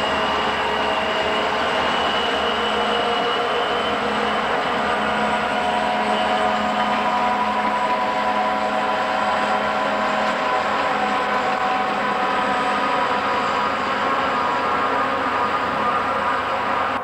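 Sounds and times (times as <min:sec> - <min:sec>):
diesel locomotives running: 0:00.0 - 0:17.0
steady whining tones: 0:00.0 - 0:17.0.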